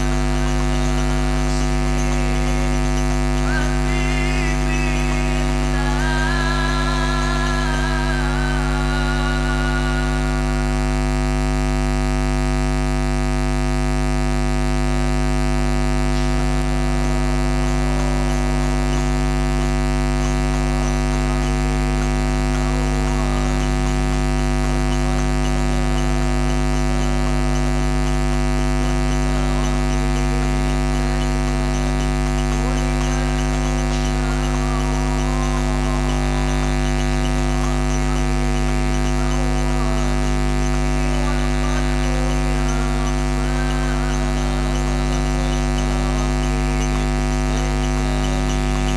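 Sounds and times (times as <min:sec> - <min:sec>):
faint wavering voices: 0:00.0 - 0:14.6, 0:15.2 - 0:48.9
electrical hum and buzz: 0:00.0 - 0:48.9.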